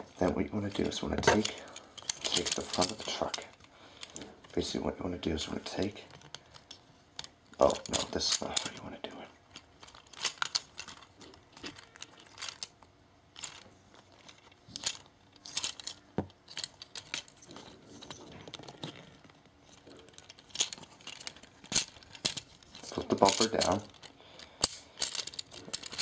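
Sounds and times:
plastic toy parts clicking: 9.8s - 12.8s, 14.2s - 26.0s.

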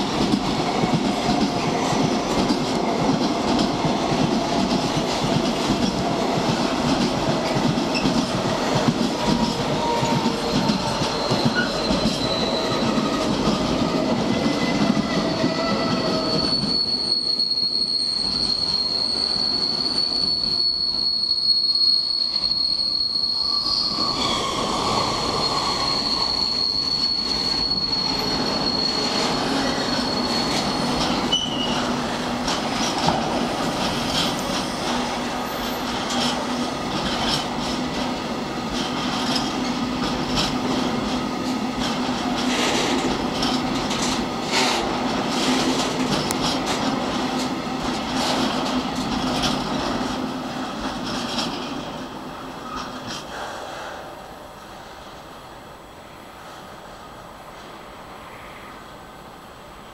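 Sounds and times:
train wheels clattering over rail joints: 0.0s - 16.7s, 27.4s - 53.6s
high wheel squeal: 7.4s - 50.1s.

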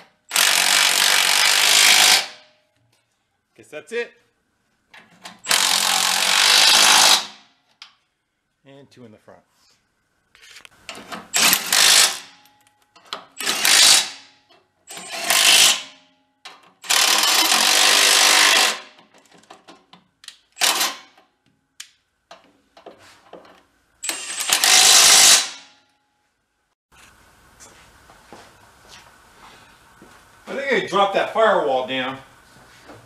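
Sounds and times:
cordless impact wrench hammering: 0.3s - 2.4s, 5.3s - 7.4s, 11.3s - 12.4s, 13.1s - 14.3s, 14.9s - 15.9s, 16.8s - 19.2s, 20.6s - 21.2s, 24.0s - 25.7s.

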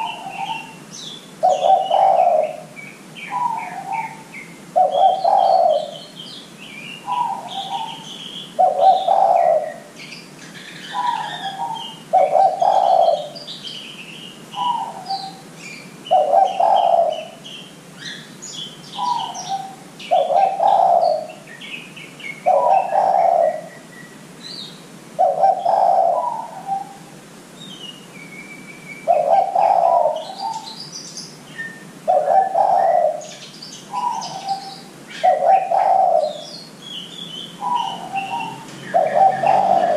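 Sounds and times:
dove cooing: 0.0s - 6.2s, 7.0s - 13.5s, 14.6s - 15.5s, 16.1s - 18.2s, 18.9s - 21.5s, 22.4s - 23.8s, 25.2s - 27.2s, 29.0s - 30.8s, 32.0s - 36.5s, 37.6s - 39.9s
small birds chirping: 0.0s - 39.9s.

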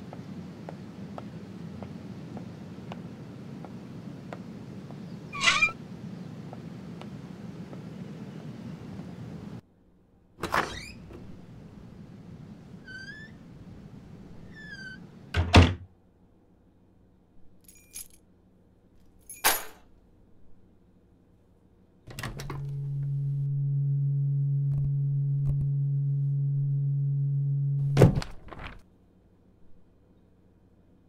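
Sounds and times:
door shutting: 10.4s - 11.6s, 12.7s - 15.8s, 22.1s - 23.2s, 27.8s - 28.8s
keys clinking: 17.6s - 18.2s, 19.2s - 19.7s
steady low hum: 22.1s - 28.4s.

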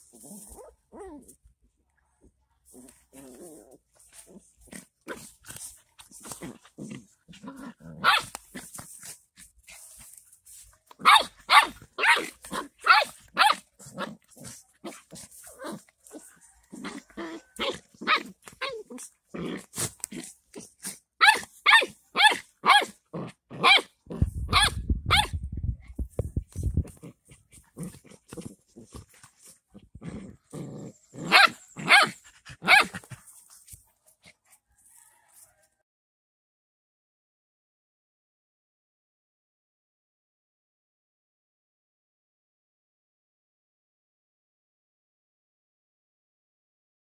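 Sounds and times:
dogs barking and yelping: 2.9s - 23.0s, 23.6s - 25.4s, 26.8s - 35.4s
dog barking: 8.0s - 8.3s, 11.0s - 13.6s, 21.2s - 22.9s, 24.5s - 25.4s, 31.3s - 33.0s.

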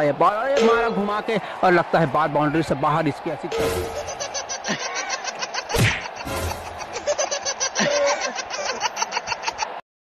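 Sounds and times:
laughter in rapid pulses: 3.9s - 9.8s.

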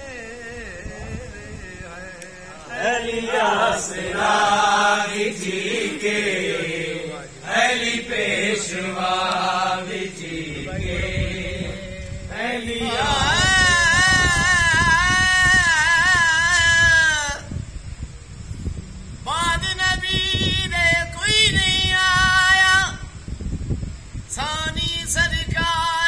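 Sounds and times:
person singing long wavering notes: 0.0s - 3.5s.

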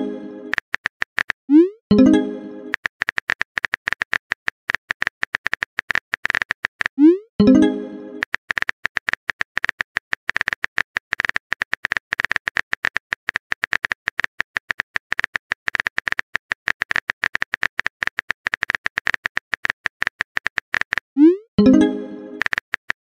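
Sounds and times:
phone keyboard typing clicks: 8.2s - 23.0s.

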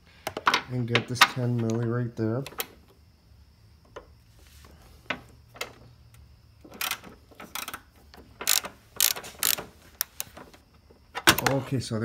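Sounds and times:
socket ratchet clicking: 6.7s - 10.4s.

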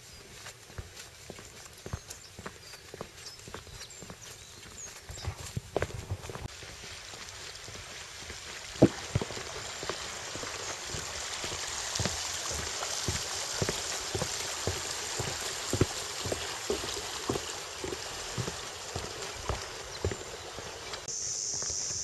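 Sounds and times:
footsteps on wooden boardwalk: 0.0s - 22.0s
steady rushing hiss: 6.2s - 22.0s.

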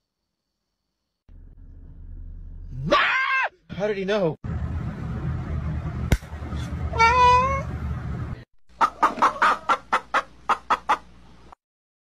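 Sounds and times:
low background hum: 4.5s - 8.4s
cat meowing: 6.9s - 7.7s
chickens clucking: 8.7s - 11.3s.

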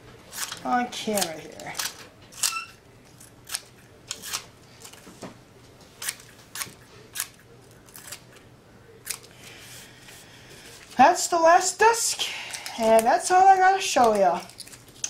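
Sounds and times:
scissors snipping: 9.0s - 9.3s, 14.0s - 15.0s.

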